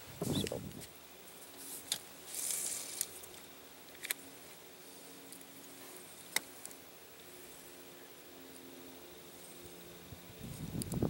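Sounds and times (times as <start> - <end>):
rustle in a kayak: 0.2 - 3.4.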